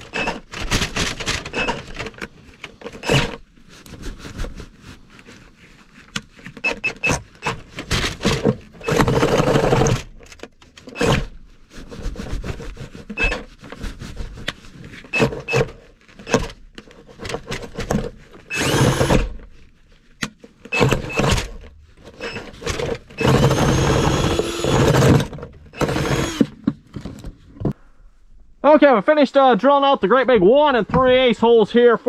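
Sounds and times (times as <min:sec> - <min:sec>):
cordless drill boring wood: 0:08.8 - 0:10.0, 0:11.0 - 0:11.3, 0:18.5 - 0:19.4, 0:20.8 - 0:21.5, 0:23.1 - 0:26.6.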